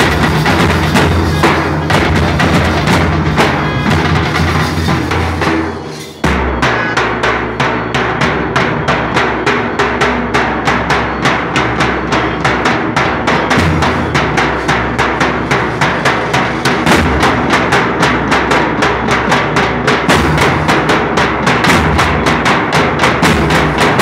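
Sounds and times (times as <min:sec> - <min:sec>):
bass drums beating fast: 0:00.0 - 0:24.0
deep continuous drum boom: 0:00.0 - 0:24.0.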